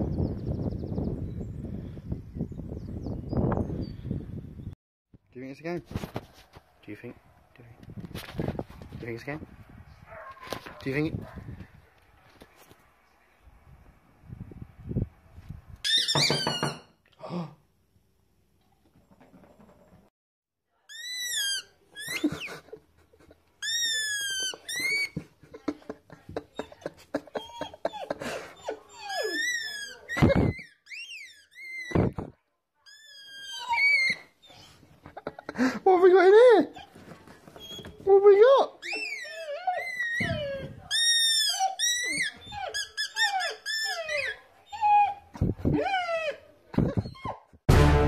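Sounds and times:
puppy whining: 20.9 - 25.8, 26.4 - 32.3, 32.9 - 35.4, 36.3 - 47.6
short loud sound: 47.7 - 48.0.

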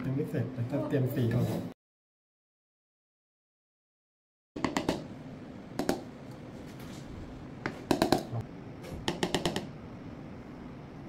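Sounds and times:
utensil tapping small containers: 4.6 - 5.1, 5.8 - 6.1, 7.6 - 8.4, 9.1 - 9.8
low room hum: 4.6 - 11.0.

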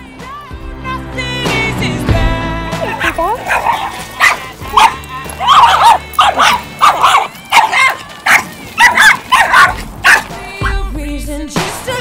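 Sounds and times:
pop music: 0.0 - 12.0
small dog yapping: 2.8 - 10.8.

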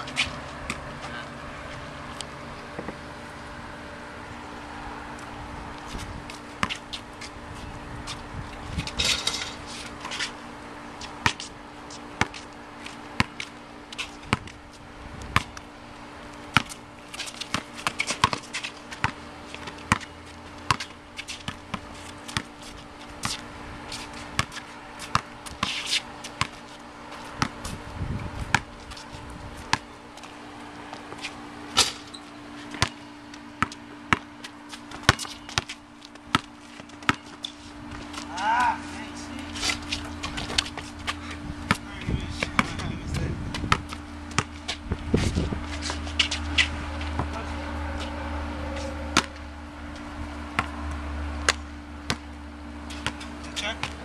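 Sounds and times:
low hum: 0.0 - 54.0
basketball bouncing on concrete: 2.7 - 3.0, 5.8 - 7.3, 11.1 - 11.5, 12.2 - 12.5, 13.2 - 14.6, 15.3 - 15.6, 16.5 - 48.2, 48.9 - 49.5, 50.5 - 54.0.

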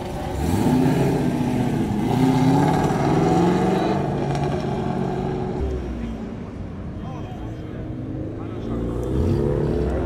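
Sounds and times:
car engine revving: 0.0 - 5.7.

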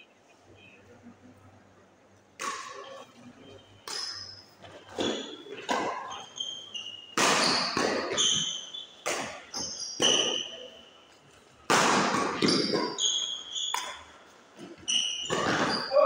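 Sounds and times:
rackets hitting shuttlecock: 2.4 - 3.0, 3.8 - 10.7, 11.6 - 16.0
shoes squeaking on court floor: 2.4 - 11.5, 12.1 - 16.0.

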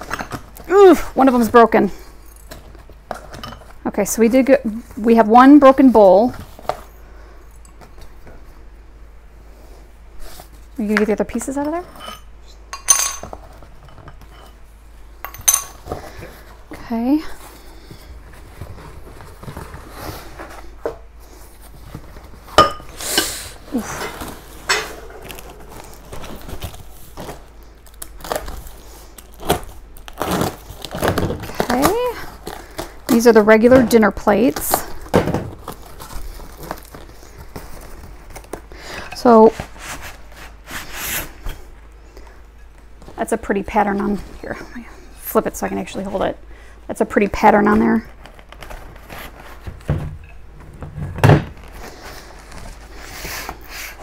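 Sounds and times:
packing material crinkling: 23.5 - 41.4, 47.9 - 49.9.

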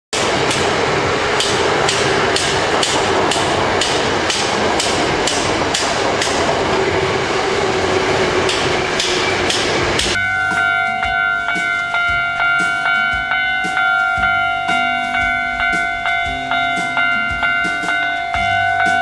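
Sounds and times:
loud steady rushing noise: 0.1 - 19.0
hammer strikes: 8.5 - 19.0.

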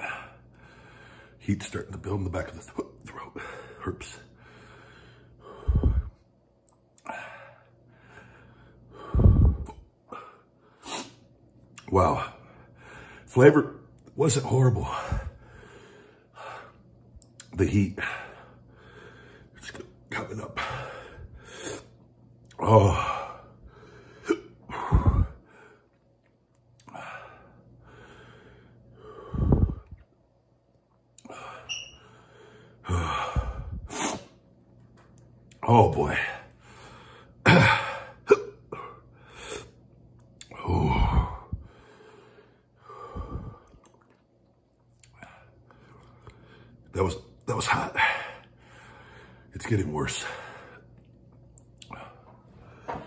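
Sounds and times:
man breathing heavily: 0.0 - 1.4, 3.2 - 6.3, 7.0 - 11.1, 12.2 - 13.3, 14.8 - 16.9, 18.0 - 19.6, 20.4 - 22.0, 22.6 - 26.0, 26.9 - 30.0, 31.2 - 34.3, 36.1 - 39.8, 40.5 - 43.8, 47.8 - 49.5, 50.1 - 50.9, 51.8 - 53.0
breath blowing on microphone: 5.6 - 6.2, 9.1 - 9.8, 24.8 - 25.4, 29.2 - 30.0, 43.1 - 43.7
man exhaling hard: 9.1 - 11.1, 29.2 - 30.0, 43.0 - 43.7.

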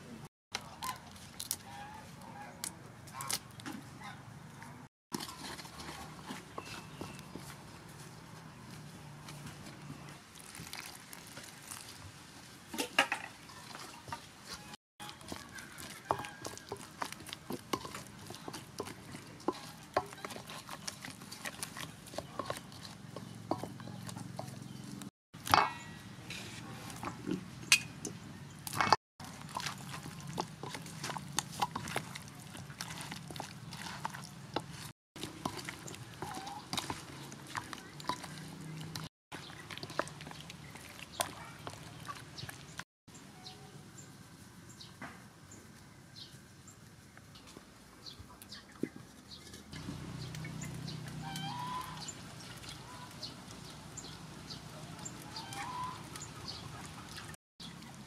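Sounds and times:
spatula stirring wet batter: 5.1 - 12.0, 13.6 - 25.1, 28.7 - 42.8, 49.4 - 58.0.

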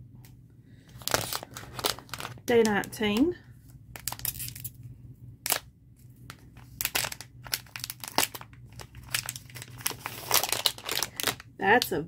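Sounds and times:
foil bag crinkling: 0.8 - 3.3, 6.3 - 11.9.

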